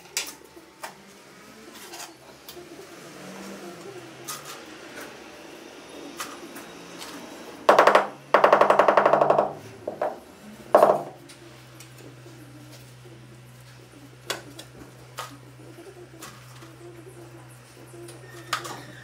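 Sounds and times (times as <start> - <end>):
rubber mallet tapping floor tile: 7.7 - 10.2, 10.8 - 11.2.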